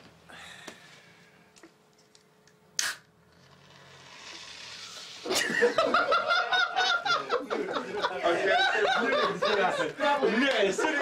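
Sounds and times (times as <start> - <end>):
men laughing: 5.2 - 11.0.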